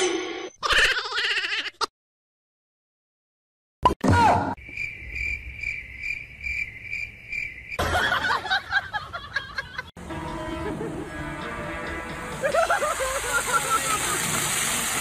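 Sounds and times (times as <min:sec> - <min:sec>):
cricket chirping: 0:04.6 - 0:08.6.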